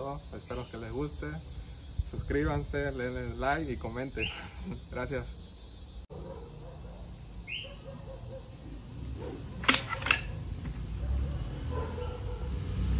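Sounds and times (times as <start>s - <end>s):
crickets chirring: 0.0s - 12.9s.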